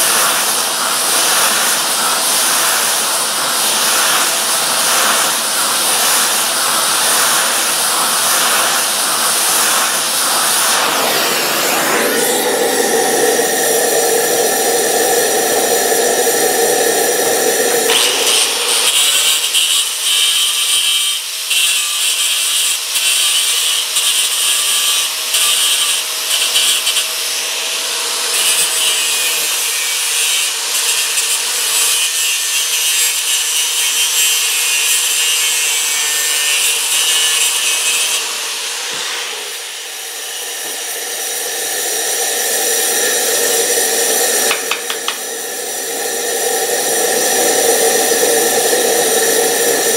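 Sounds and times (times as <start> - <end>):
welding arc crackling and hissing: 0.0 - 49.9
machine hum: 0.1 - 20.2, 38.2 - 49.9.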